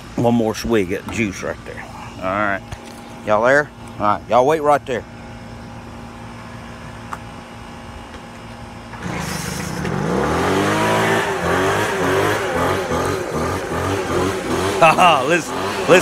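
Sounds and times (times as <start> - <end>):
leaf blower engine revving: 8.9 - 16.0.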